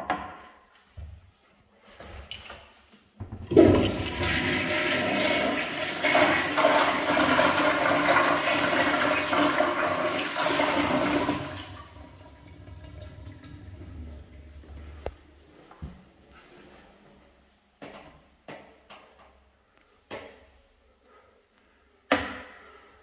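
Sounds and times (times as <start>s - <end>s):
toilet flushing: 3.2s - 15.1s.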